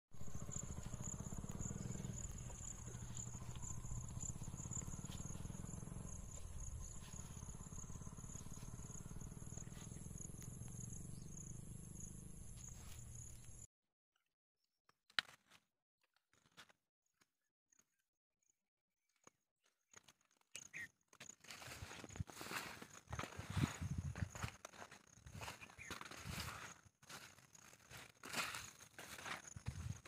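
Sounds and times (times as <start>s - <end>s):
insects chirring: 0.2s - 13.7s, 20.6s - 30.0s.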